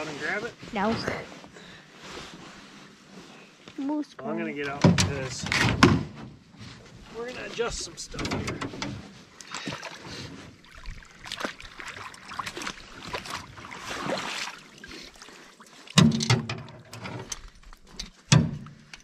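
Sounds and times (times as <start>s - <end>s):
water splashing and dripping: 9.4s - 19.0s.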